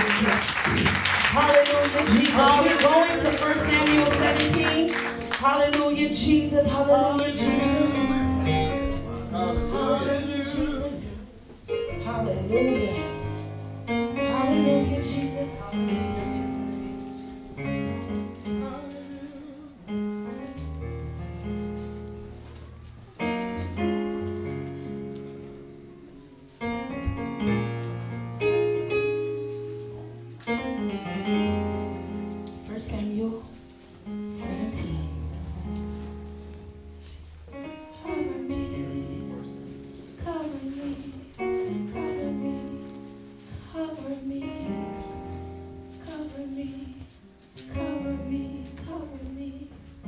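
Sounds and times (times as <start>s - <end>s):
instrumental music: 0.0s - 50.0s
slow piano chords on keyboard: 2.5s - 50.0s
person singing: 3.4s - 13.4s, 14.2s - 16.6s, 18.4s - 20.0s.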